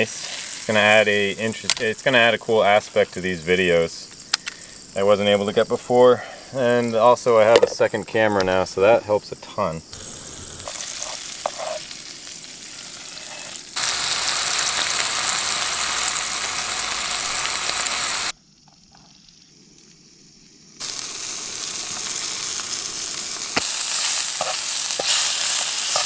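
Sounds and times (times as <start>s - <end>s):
burger sizzling in frying pan: 0.0s - 5.0s, 9.9s - 18.3s, 20.8s - 26.0s.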